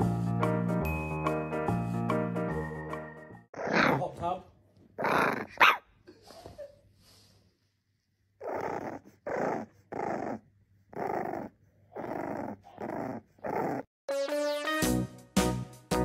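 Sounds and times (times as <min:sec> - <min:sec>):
piano-like music: 0:00.0 - 0:03.5, 0:14.1 - 0:16.0
puppy growling: 0:03.5 - 0:04.2, 0:05.0 - 0:05.8, 0:08.4 - 0:13.9.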